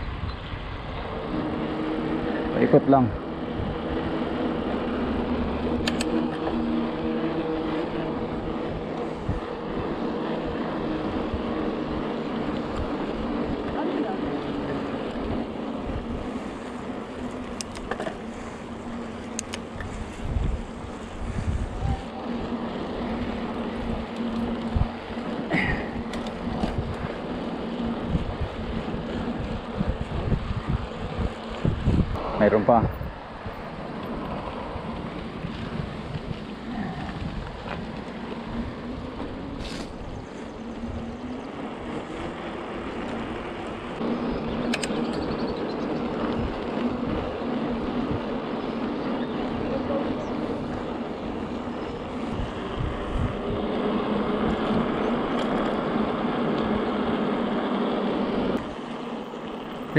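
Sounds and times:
bicycle tyre noise: 0.0s - 59.9s
rolling noise: 0.0s - 59.9s
steady low hum: 0.0s - 59.9s
sharp clicks: 5.8s - 6.2s, 19.3s - 19.6s, 44.6s - 45.6s
wind rushing: 26.0s - 48.9s, 50.2s - 57.6s.

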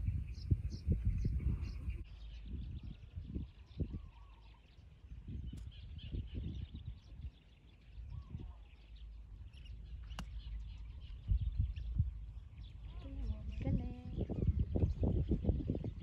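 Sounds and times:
birds chirping: 0.0s - 16.0s
wind on microphone: 0.0s - 16.0s
golf club striking ball: 10.0s - 10.5s.

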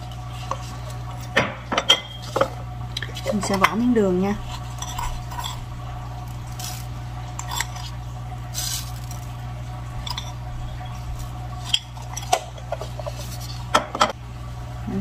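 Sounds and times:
steady low hum: 0.0s - 15.0s
spoon scraping sugar canister: 6.4s - 9.3s, 10.0s - 13.7s.

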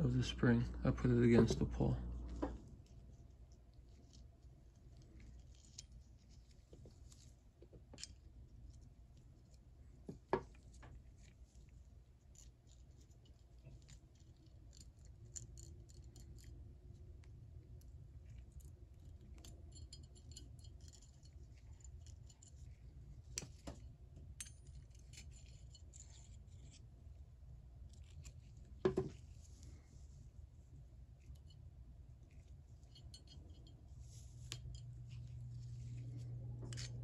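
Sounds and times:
small metal clicks and scrapes: 2.5s - 9.7s, 10.5s - 17.1s, 17.8s - 27.2s, 31.1s - 37.0s.

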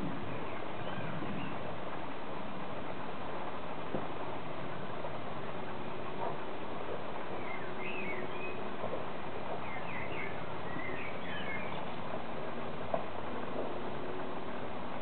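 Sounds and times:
outdoor hiss: 0.0s - 15.0s
songbird twittering: 7.3s - 8.7s, 9.5s - 12.0s.

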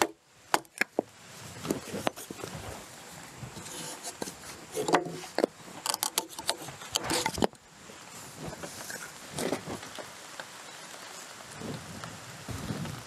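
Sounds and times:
sharp wooden knocks and cracks: 0.0s - 2.4s.

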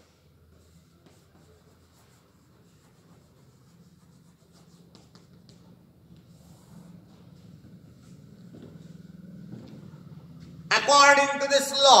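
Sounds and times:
chalk scratching on blackboard: 0.5s - 7.0s
chalk tapping: 0.5s - 7.0s.

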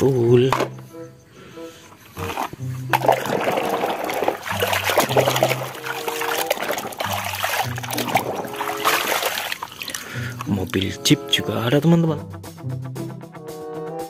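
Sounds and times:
water splashing in a basin: 2.2s - 11.0s.

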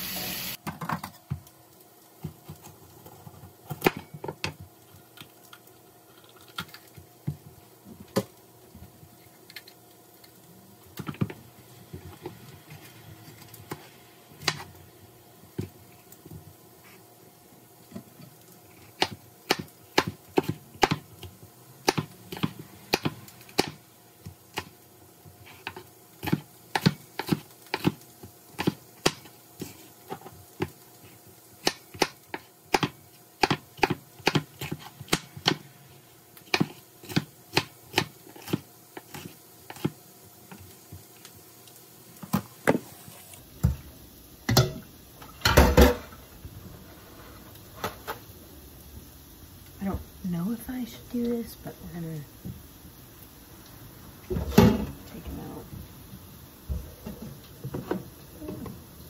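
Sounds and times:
knife chopping on cutting board: 21.8s - 23.8s, 31.6s - 35.6s.

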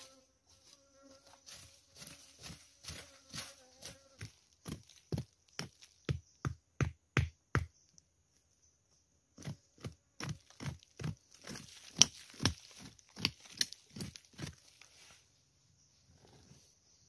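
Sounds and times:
knife chopping into soil: 9.4s - 14.6s.

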